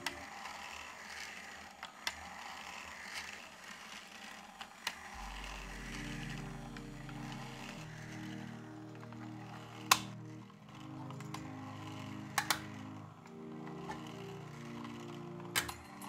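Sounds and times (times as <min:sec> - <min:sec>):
engine model whirring: 0:00.0 - 0:16.0
plastic parts clicking and creaking: 0:00.0 - 0:16.0
low sustained music notes: 0:05.1 - 0:16.0.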